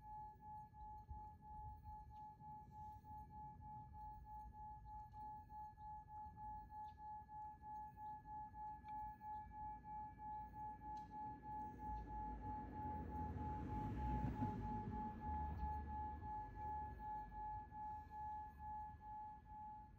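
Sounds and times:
pulsing bell-like tone: 9.2 - 19.9.

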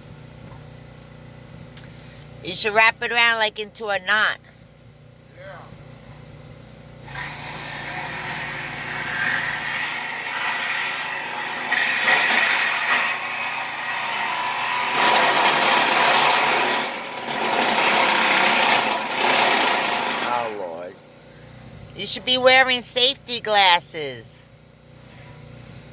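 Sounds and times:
reciprocating saw cutting steel: 7.0 - 21.0.

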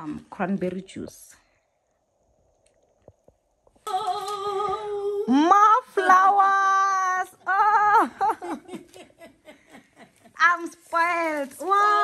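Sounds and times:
woman singing long notes: 3.9 - 5.8.

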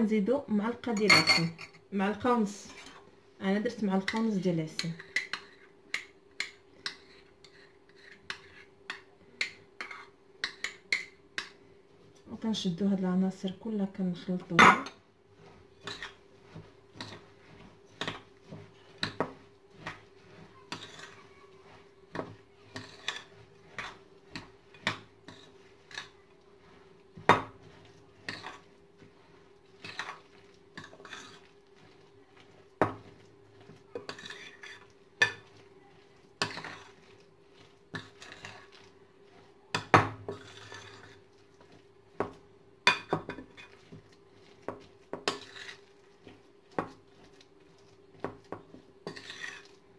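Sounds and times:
spoon clinking against glass bowl: 1.0 - 1.8.

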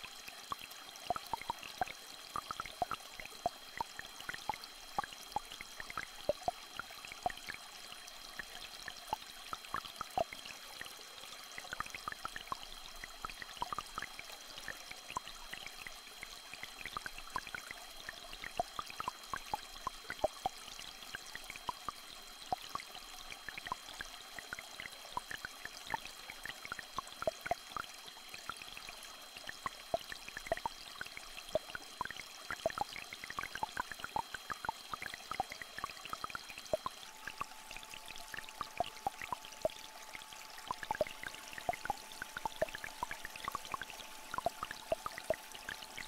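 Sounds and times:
stream trickling: 0.0 - 46.0
steady high-pitched tones: 36.2 - 46.0.

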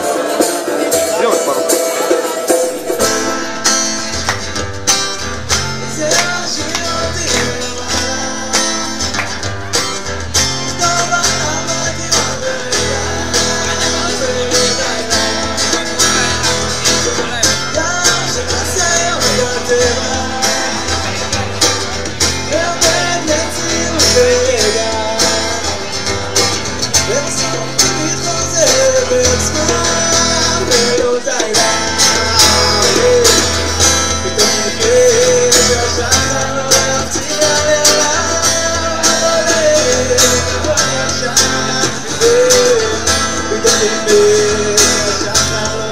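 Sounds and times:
person singing: 0.0 - 4.0, 5.6 - 9.9, 10.5 - 45.9
acoustic guitars strummed: 0.0 - 45.9.

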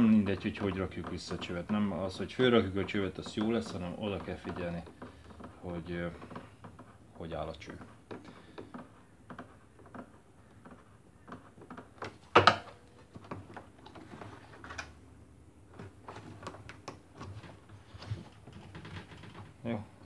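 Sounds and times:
rubber rubbing on plastic: 0.0 - 12.3
clicks and light knocks: 0.0 - 15.0, 15.6 - 19.8.

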